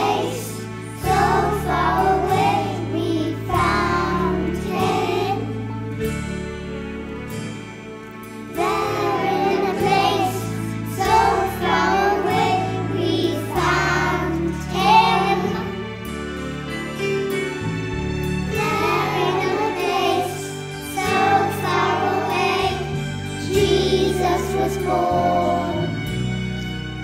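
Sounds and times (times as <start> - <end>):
young children singing: 0.0 - 5.7, 8.5 - 15.9, 18.6 - 26.1
instrumental accompaniment: 0.0 - 27.0.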